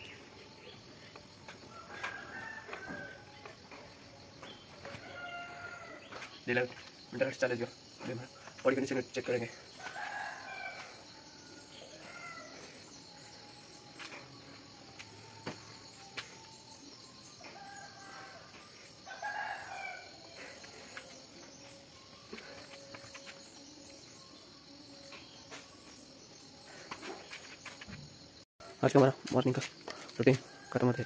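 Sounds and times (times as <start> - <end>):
rooster crowing: 1.6 - 3.5, 4.8 - 6.2, 9.7 - 13.0, 17.4 - 20.7.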